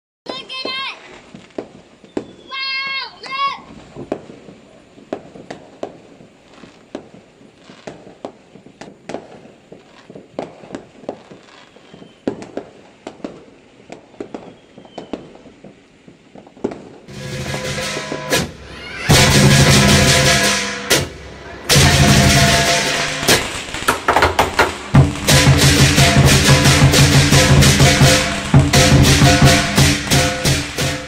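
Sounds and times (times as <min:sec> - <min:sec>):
distant fireworks bangs and pops: 0:00.3 - 0:31.0
big drum: 0:17.1 - 0:31.0
clashing cymbals: 0:17.1 - 0:31.0
gongs: 0:17.1 - 0:31.0.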